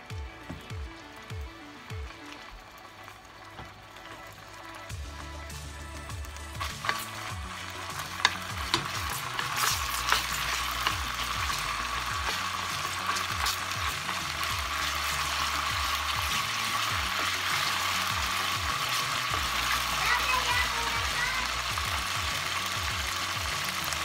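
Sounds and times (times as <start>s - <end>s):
garlic sizzling in oil: 0.0s - 24.0s
utensil clicking against pan: 6.2s - 19.9s.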